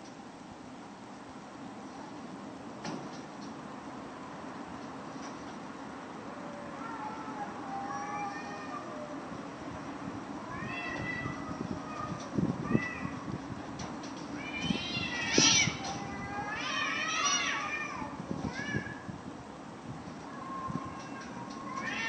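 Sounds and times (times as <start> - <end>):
cat meowing and yowling: 6.3 - 9.2, 10.4 - 13.3, 14.4 - 19.1, 20.3 - 22.0.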